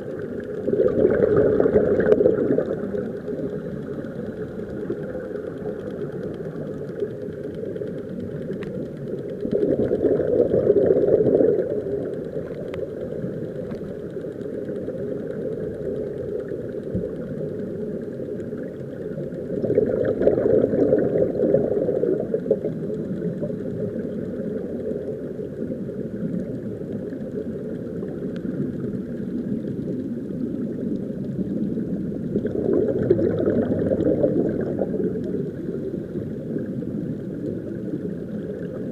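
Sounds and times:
muffled underwater rumble: 0:00.0 - 0:38.9.

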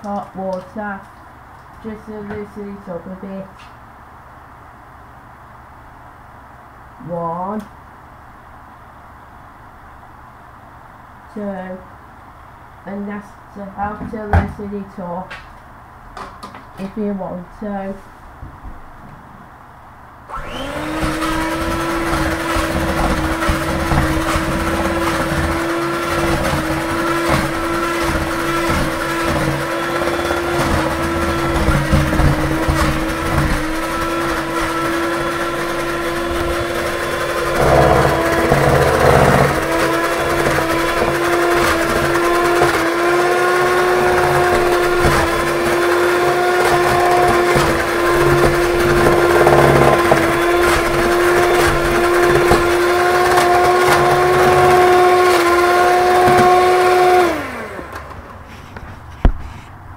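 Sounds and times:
stand mixer whisking batter: 0:20.4 - 0:58.1.

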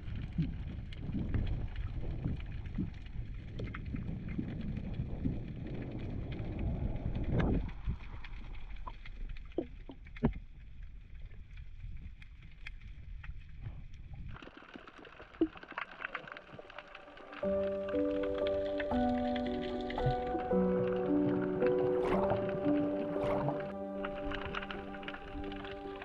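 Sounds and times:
bubble gurgles: 0:00.0 - 0:10.0, 0:14.3 - 0:26.0
low rumbling underwater noise: 0:00.0 - 0:26.0
sharp underwater clicks: 0:14.3 - 0:26.0.

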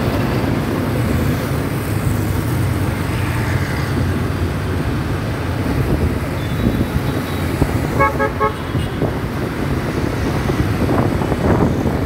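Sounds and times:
motorcycle engine and road noise: 0:00.0 - 0:12.0
vehicle horn tooting: 0:08.0 - 0:09.1.

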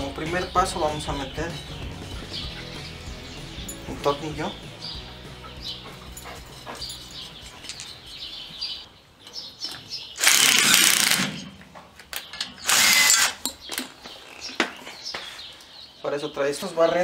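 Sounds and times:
impact driver bursts: 0:10.2 - 0:11.5, 0:12.6 - 0:13.4.

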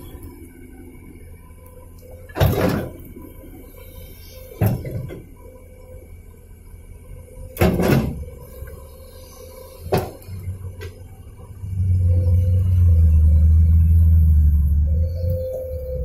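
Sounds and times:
excavator engine running: 0:00.0 - 0:16.0.

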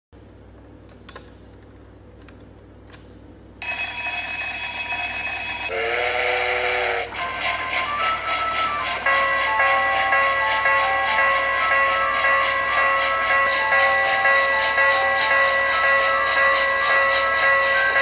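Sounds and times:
train whistle toot: 0:05.7 - 0:09.9.

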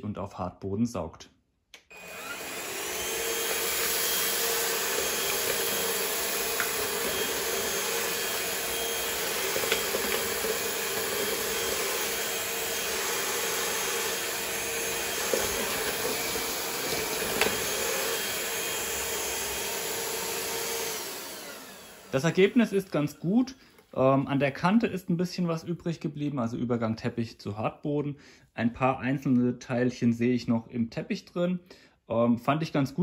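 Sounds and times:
stick vacuum cleaner running: 0:01.9 - 0:23.2.

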